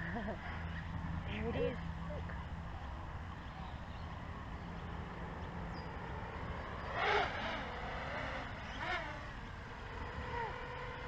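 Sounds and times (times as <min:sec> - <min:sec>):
quadcopter motors whining: 0:04.8 - 0:11.0.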